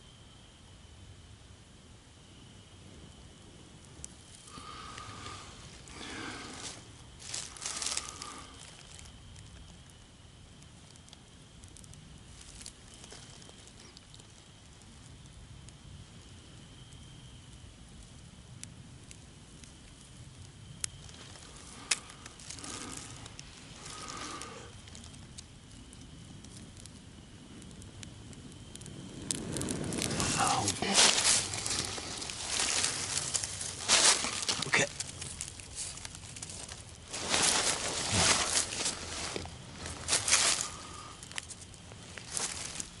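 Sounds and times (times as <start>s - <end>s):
dry grass crackling: 4.1s - 9.9s, 11.7s - 14.6s, 20.7s - 26.6s, 28.6s - 43.0s.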